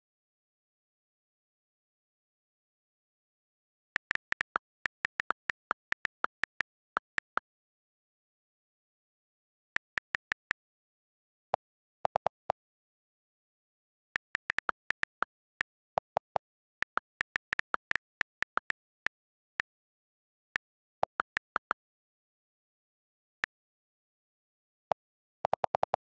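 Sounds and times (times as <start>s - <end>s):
phone keyboard clicks: 4.0s - 7.4s, 14.2s - 19.2s.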